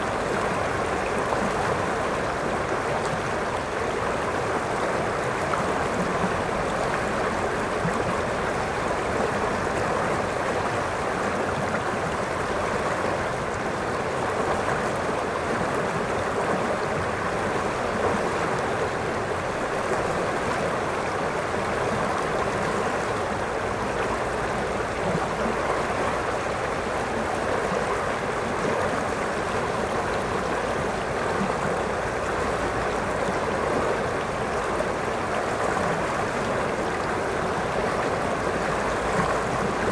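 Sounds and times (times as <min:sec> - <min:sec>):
river rushing over rocks: 0:00.0 - 0:39.9.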